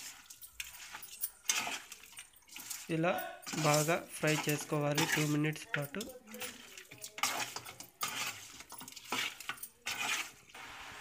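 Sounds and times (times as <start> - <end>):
metal spoon scraping a wok: 0.0 - 10.6
food sizzling hiss: 9.9 - 11.0.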